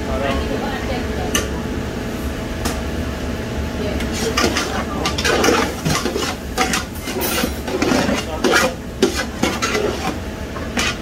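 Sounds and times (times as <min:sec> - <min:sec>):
spatula scraping metal pot: 0:04.2 - 0:11.0.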